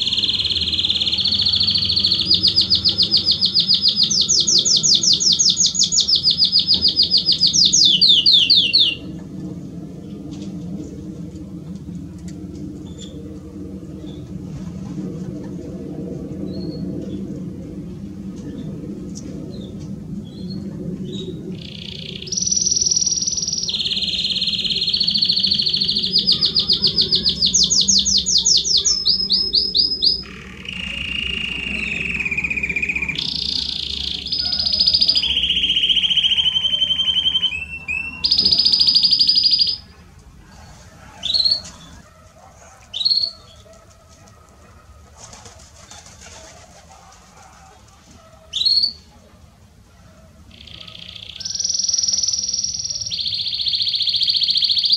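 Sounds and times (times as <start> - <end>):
canary singing rapid trills: 0.0 - 9.2, 19.6 - 43.6, 48.4 - 49.1, 50.4 - 54.9.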